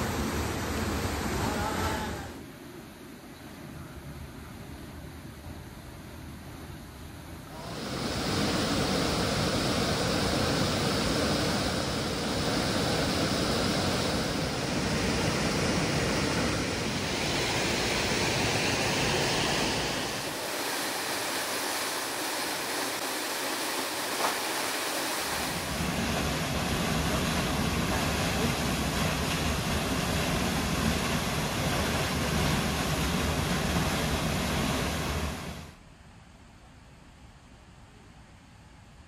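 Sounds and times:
stream water rushing: 0.0 - 2.6, 7.5 - 35.8.

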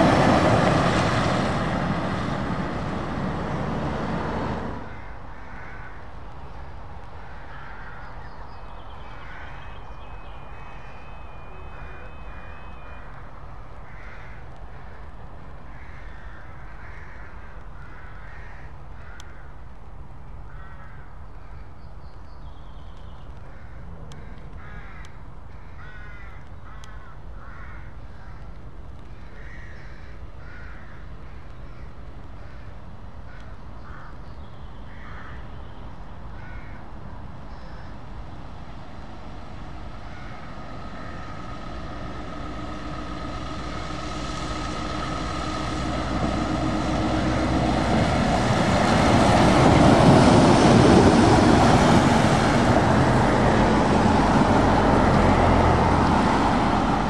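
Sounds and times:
truck engine whining: 0.0 - 4.9, 39.2 - 57.0
birds calling: 0.0 - 19.5
tyres on wet road: 0.0 - 57.0
low steady rumble: 37.6 - 55.7.

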